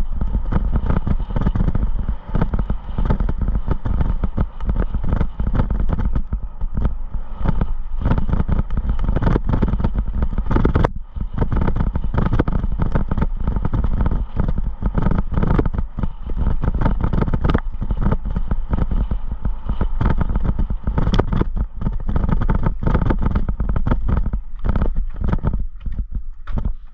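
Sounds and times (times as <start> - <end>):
wind rushing over microphone: 0.0 - 26.9.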